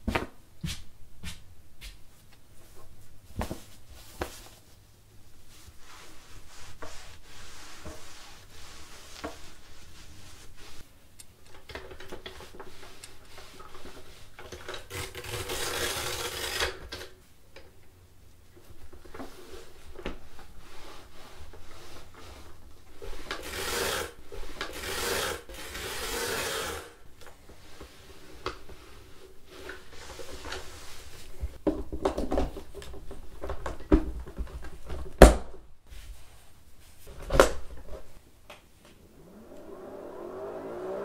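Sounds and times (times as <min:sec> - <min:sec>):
cloth rubbing against plastic: 0:03.4 - 0:10.9.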